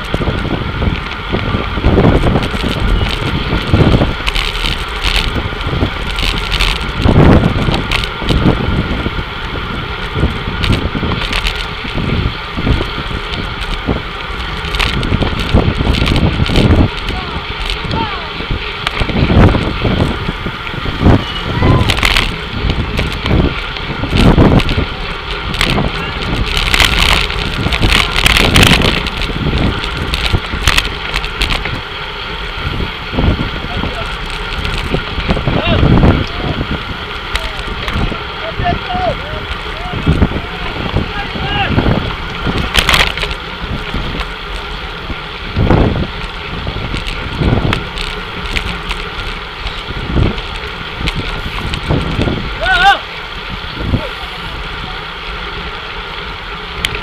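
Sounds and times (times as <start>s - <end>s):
tyres rumbling on road: 0.0s - 57.0s
wind buffeting microphone: 0.0s - 57.0s
short sharp crackle: 2.0s - 8.6s, 10.1s - 17.9s, 21.0s - 31.9s, 39.5s - 52.9s.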